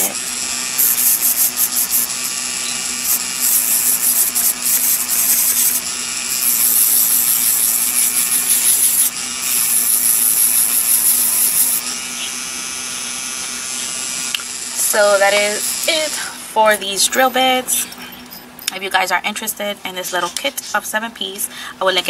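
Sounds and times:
nail drill motor hum: 0.0s - 17.4s.

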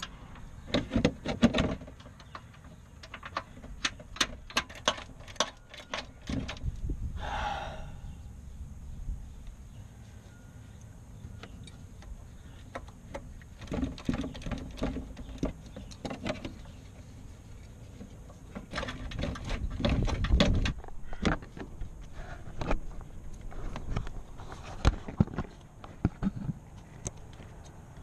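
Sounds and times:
low steady rumble: 6.5s - 13.6s.

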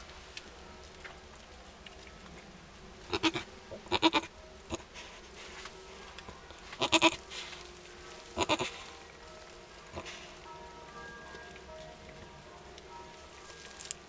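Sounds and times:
goat bleating: 3.1s - 4.9s, 6.7s - 7.2s, 8.4s - 8.8s.

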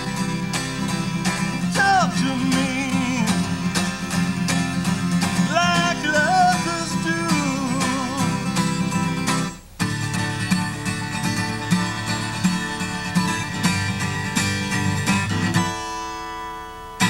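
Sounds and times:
acoustic guitar strumming chords: 0.0s - 17.0s.

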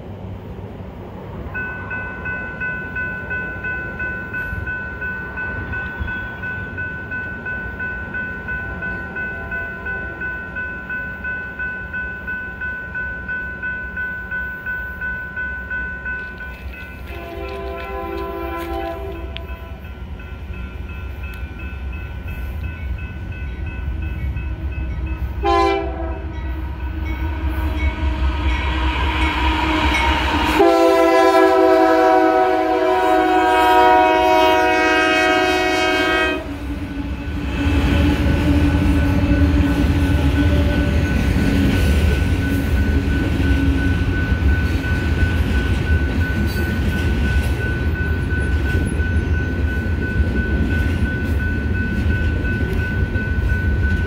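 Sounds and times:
train cars rumbling on rails: 0.0s - 54.0s
locomotive air horn blasts: 17.1s - 19.8s, 25.4s - 28.2s, 29.5s - 41.0s.

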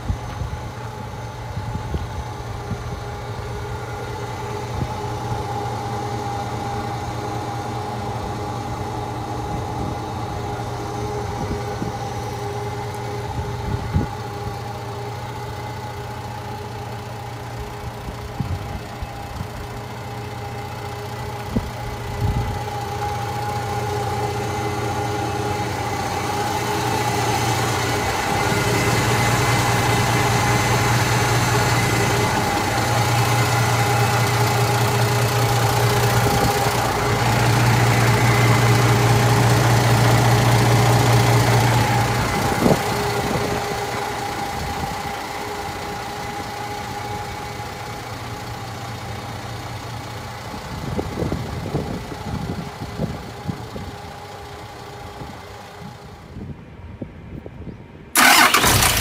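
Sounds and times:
diesel engine idling: 0.0s - 57.3s, 57.9s - 59.0s.

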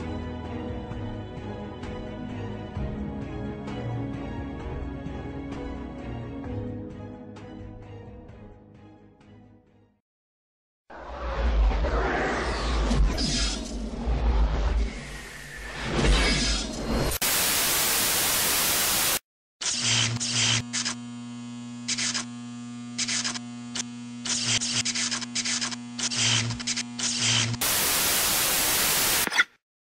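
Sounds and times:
crackling static bursts: 17.2s - 19.2s, 23.0s - 29.3s.

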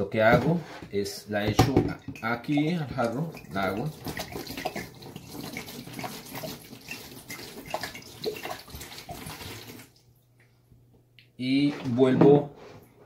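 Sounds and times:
water pouring into plastic tub: 1.6s - 10.0s.

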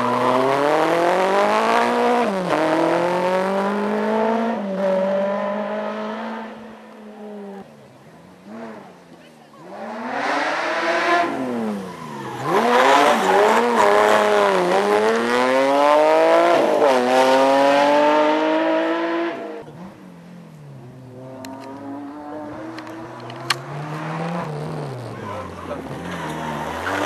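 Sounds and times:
rally car engine revving: 0.0s - 7.8s, 8.4s - 27.0s.

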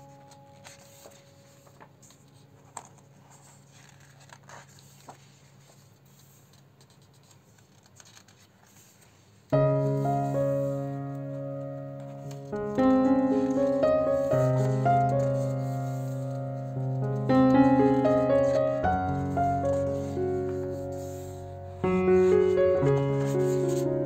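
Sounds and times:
piano chords: 0.0s - 3.6s, 9.5s - 24.0s
book pages turning: 0.0s - 24.0s.

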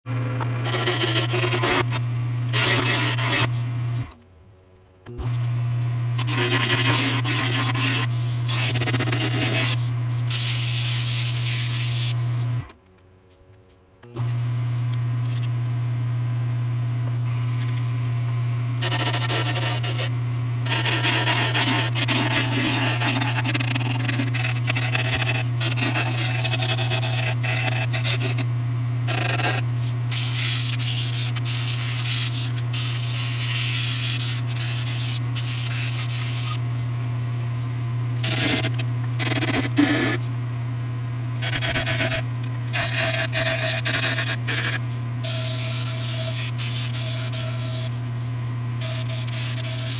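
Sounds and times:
lathe motor hum: 0.1s - 4.1s, 5.1s - 10.2s, 15.8s - 37.2s, 41.4s - 49.9s
turning tool scraping wood: 0.6s - 4.1s, 6.2s - 12.7s, 18.8s - 28.5s, 29.1s - 36.8s, 38.2s - 40.3s, 41.4s - 48.2s, 48.8s - 49.9s
sandpaper rubbing wood: 0.7s - 1.9s, 2.6s - 3.6s, 6.2s - 12.2s, 18.8s - 28.4s, 29.1s - 36.6s, 41.4s - 42.2s, 42.8s - 48.0s.

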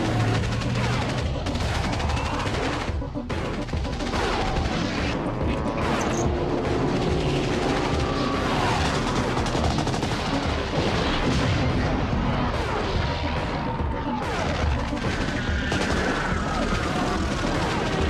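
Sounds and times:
machine-gun fire: 0.0s - 11.8s, 14.2s - 18.0s
soundtrack music: 0.0s - 18.0s.

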